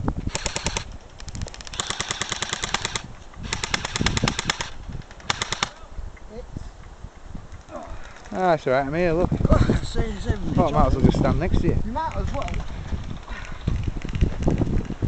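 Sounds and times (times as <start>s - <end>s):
airsoft rifle firing bursts: 0.3s - 0.9s, 1.7s - 5.8s.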